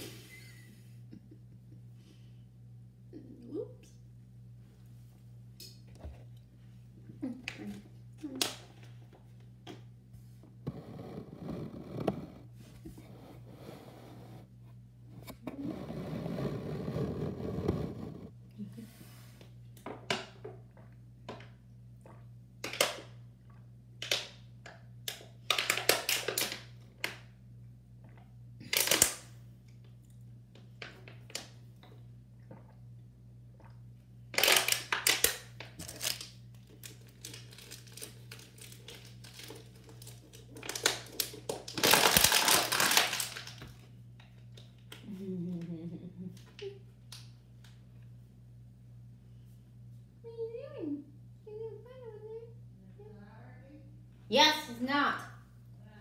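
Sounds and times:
plastic bottle crinkling: 0:34.4 - 0:43.8.

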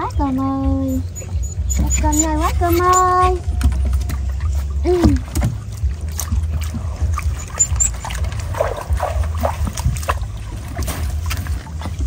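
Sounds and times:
steady low hum: 0:00.0 - 0:12.0
water trickling and splashing: 0:00.0 - 0:12.0.

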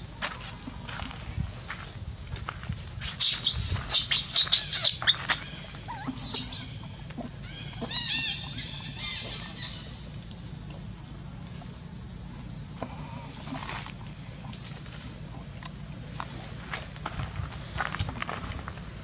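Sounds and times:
baby monkey shrieking: 0:03.0 - 0:06.8, 0:07.4 - 0:09.9
quick chirps: 0:03.0 - 0:06.8.

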